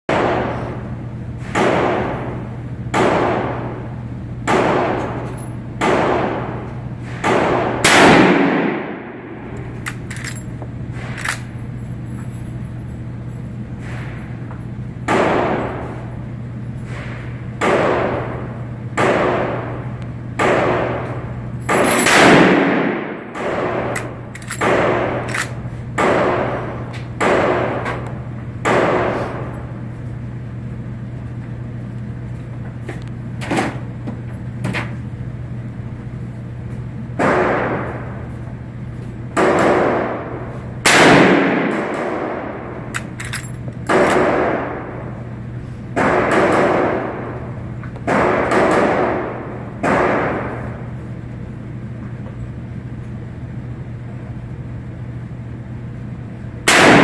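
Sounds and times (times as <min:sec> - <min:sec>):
rifle shots echoing: 0:07.2 - 0:09.6, 0:21.7 - 0:27.8, 0:39.4 - 0:42.9, 0:56.7 - 0:57.0.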